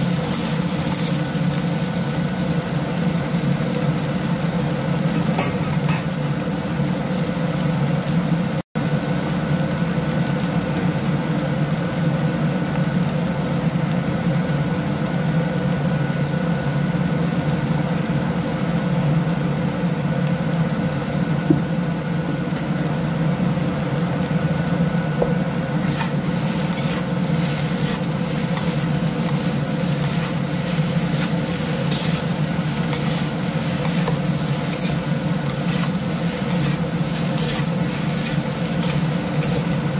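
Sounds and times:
spatula scraping a wok: 0.0s - 2.1s, 25.8s - 39.9s
rice sizzling in a wok: 0.0s - 39.9s.

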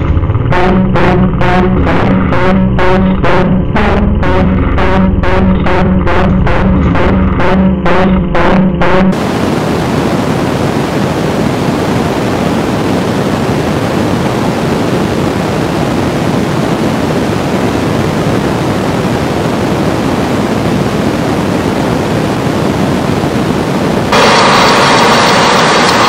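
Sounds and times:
dense wall of static noise: 9.1s - 26.0s.

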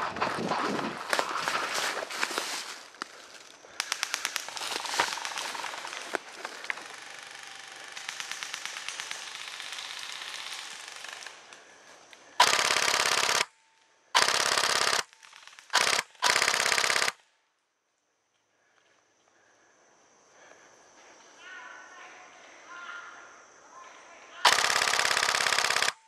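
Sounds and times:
airsoft gun firing full-auto: 12.4s - 13.5s, 14.2s - 17.2s, 24.4s - 26.0s.

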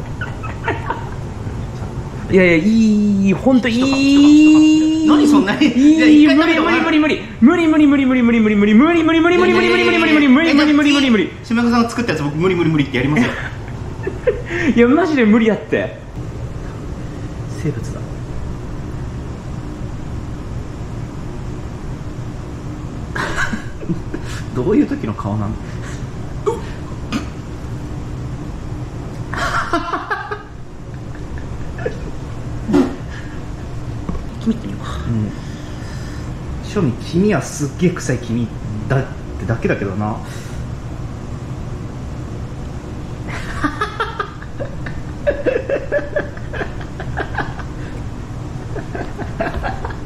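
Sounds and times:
laughter in choppy bursts: 0.0s - 1.6s, 13.2s - 14.8s, 29.3s - 32.2s, 43.3s - 50.0s
low room hum: 0.0s - 50.0s
man groaning: 2.6s - 7.1s.

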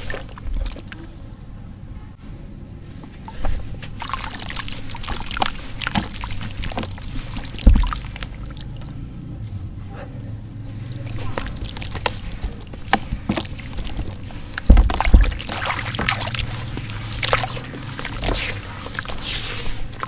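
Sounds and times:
hands squelching wet mud: 0.0s - 1.5s, 2.9s - 9.2s, 10.7s - 20.0s
heavy wet thump and splash: 3.1s - 9.1s, 10.9s - 20.0s
sand sprinkling into water: 11.1s - 20.0s.

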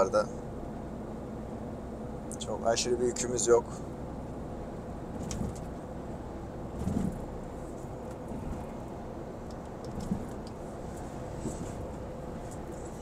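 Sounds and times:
truck engine and road hum: 0.0s - 13.0s
soft bumps: 6.8s - 7.3s, 9.9s - 13.0s.

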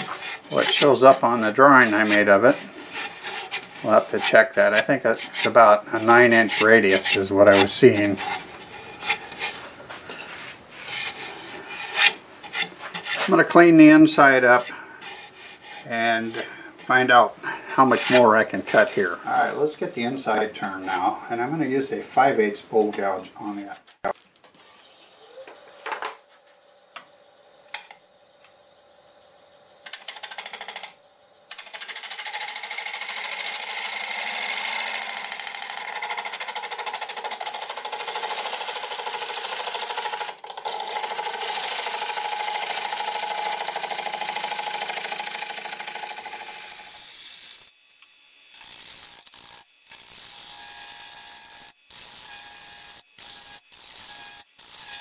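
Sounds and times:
gouge rasping on wood lathe: 0.0s - 13.6s, 14.5s - 17.1s, 17.7s - 19.1s, 32.0s - 47.6s
tool scraping spinning wood: 0.0s - 21.8s, 31.6s - 47.8s, 48.5s - 55.0s
lathe whine: 31.6s - 47.8s.

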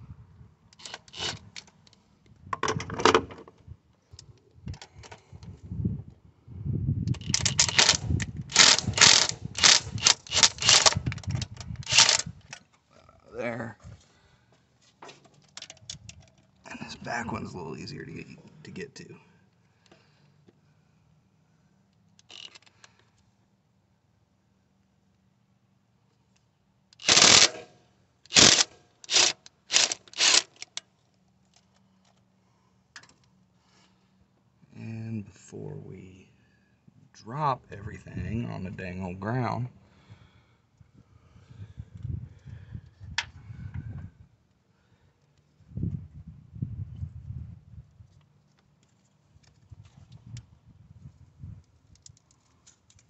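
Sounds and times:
cordless impact driver rattling: 0.8s - 1.7s, 7.1s - 12.6s, 22.2s - 22.7s, 27.0s - 27.7s, 28.3s - 30.8s
ratchet wrench clicking: 0.8s - 1.7s, 7.1s - 12.3s, 22.2s - 22.7s, 27.0s - 27.7s, 28.3s - 30.8s.

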